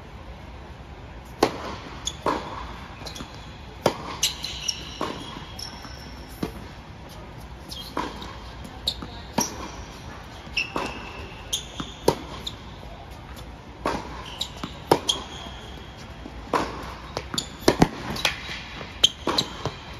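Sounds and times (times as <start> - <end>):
shoes squeaking on court: 1.3 - 19.9
ball bouncing: 1.4 - 6.7, 16.5 - 19.9
racquet striking ball: 1.4 - 6.7, 10.6 - 12.5, 16.4 - 19.9.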